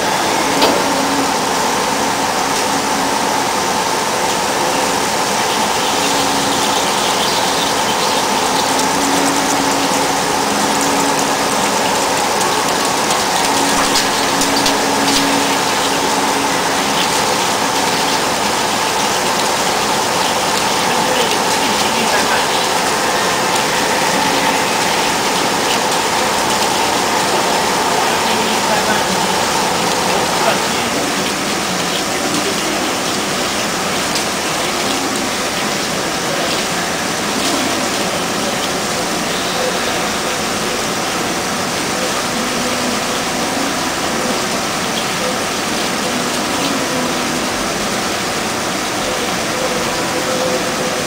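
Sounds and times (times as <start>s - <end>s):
coolant spray and cutting noise: 0.0s - 51.0s
low machine tone: 0.0s - 51.0s
steady high machine hum: 0.0s - 51.0s.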